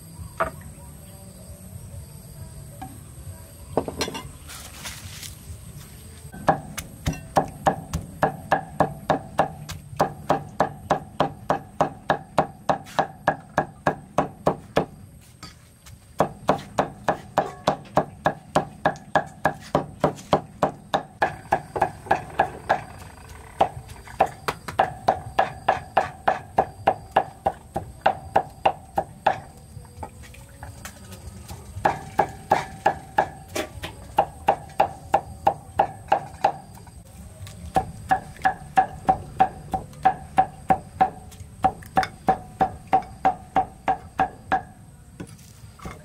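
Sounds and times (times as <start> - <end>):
cleaver chopping meat on wood: 6.4 - 15.0, 16.2 - 29.6, 31.8 - 36.8, 37.7 - 44.8.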